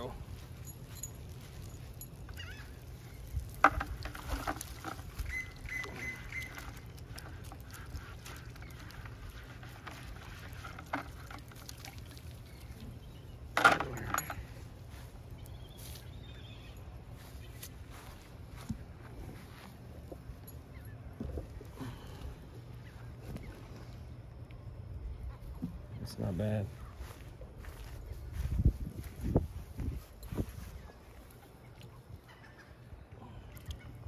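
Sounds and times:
gulls calling: 1.8 - 11.1, 30.8 - 34.0.

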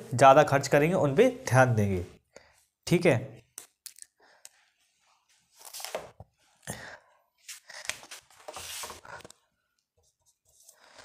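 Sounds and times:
rustling and scratching: 7.4 - 9.4.

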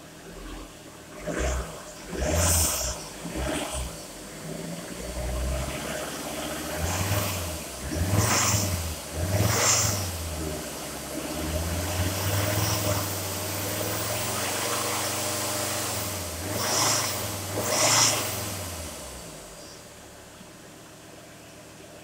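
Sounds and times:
diesel engine idling and revving: 0.0 - 22.0.

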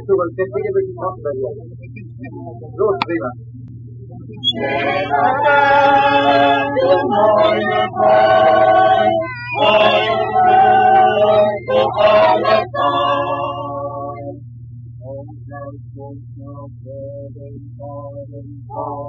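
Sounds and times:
low steady hum: 0.0 - 19.0
crowd singing together: 4.4 - 14.4.

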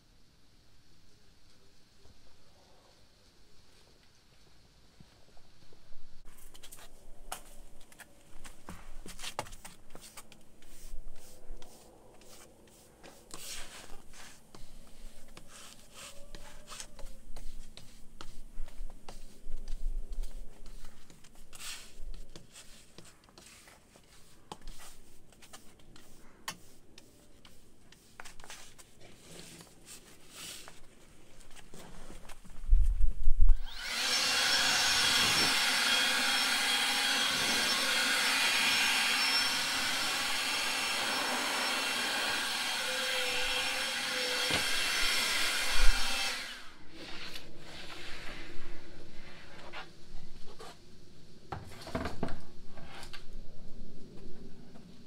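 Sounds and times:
electric motor running: 33.6 - 45.2.

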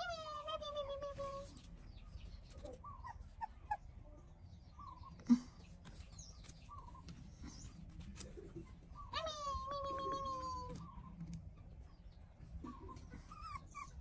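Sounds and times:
puppy whimpering: 0.0 - 1.2, 2.6 - 3.8, 12.6 - 14.0.

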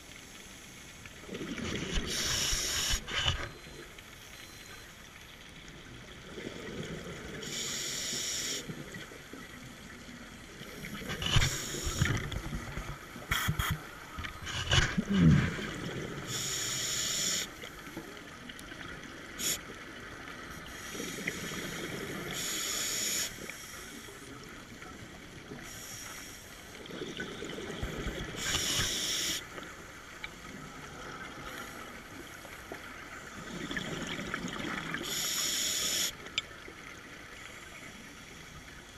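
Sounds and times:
exhaled bubbles hissing: 1.2 - 3.4, 6.3 - 8.9, 10.5 - 17.7, 19.2 - 24.1, 25.3 - 29.6, 32.9 - 36.2
diver inhaling through regulator: 1.9 - 3.2, 16.3 - 17.5, 28.4 - 29.4.

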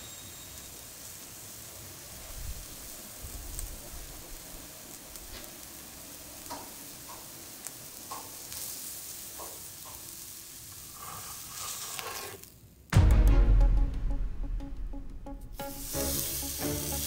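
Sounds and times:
steak sizzling on grill pan: 0.0 - 12.6, 15.6 - 17.0
fat popping and crackling: 6.4 - 8.6.

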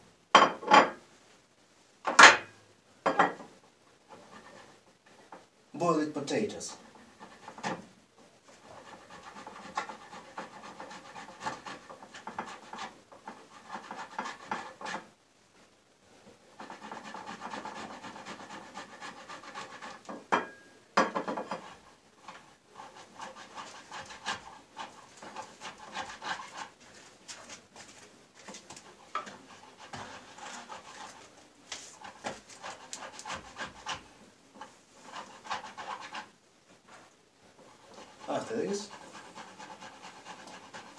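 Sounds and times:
potato rasping on metal grater: 16.6 - 20.1, 28.9 - 36.3, 37.6 - 40.9.

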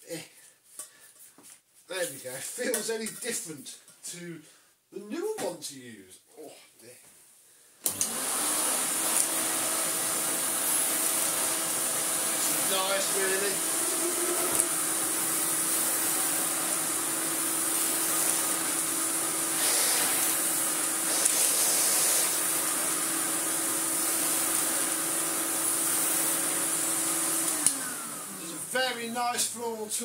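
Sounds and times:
vacuum cleaner running: 7.8 - 30.0.

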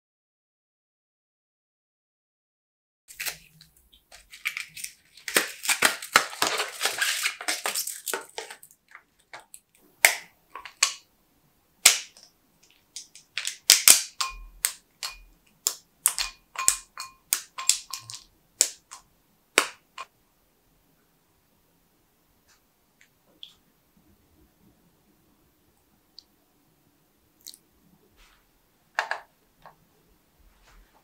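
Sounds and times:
wrapper crinkling: 3.1 - 9.8, 11.9 - 14.8
chocolate bar snapping: 3.1 - 11.0, 11.8 - 20.1.

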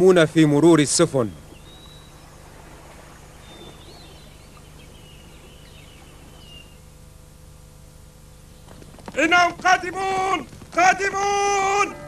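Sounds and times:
low steady hum: 0.0 - 12.0
thin high bird-like whistles: 1.6 - 2.3, 3.3 - 6.9.

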